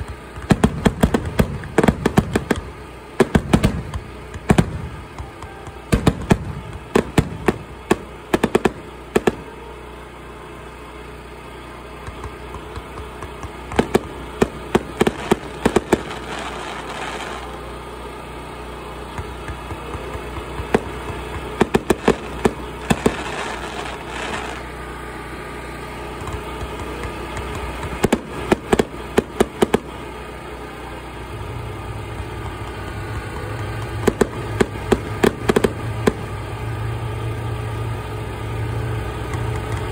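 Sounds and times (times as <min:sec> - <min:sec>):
fireworks bangs and crackles: 0:00.0 - 0:10.0, 0:10.8 - 0:18.0, 0:18.7 - 0:39.9
steady low rumble: 0:00.0 - 0:10.1, 0:12.0 - 0:17.6, 0:19.2 - 0:25.0
hissing crackle: 0:12.0 - 0:17.8, 0:19.1 - 0:25.0.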